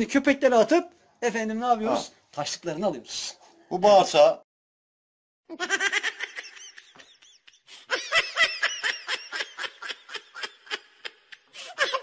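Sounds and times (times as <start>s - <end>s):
baby laughing: 5.5s - 12.0s.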